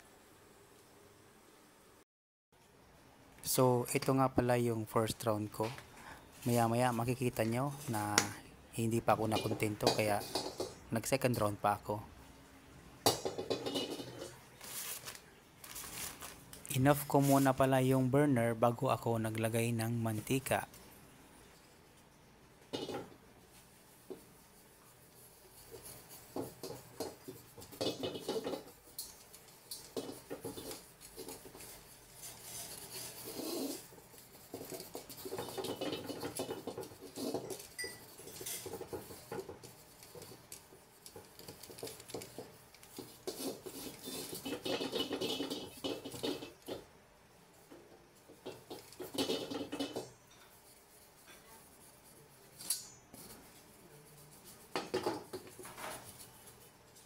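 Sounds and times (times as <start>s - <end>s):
towel scraping oil in wok: 9.2s - 10.9s, 23.8s - 46.9s, 48.2s - 53.7s.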